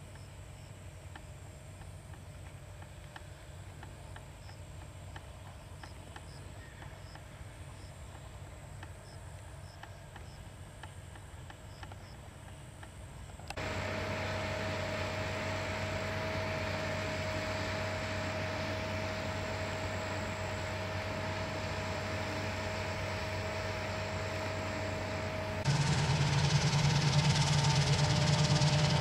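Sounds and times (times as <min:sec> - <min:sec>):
faint regular ticks: 0:01.1 - 0:13.6
distant low rumble: 0:13.5 - 0:29.0
harvester drone: 0:13.5 - 0:29.0
high steady whine: 0:13.5 - 0:29.0.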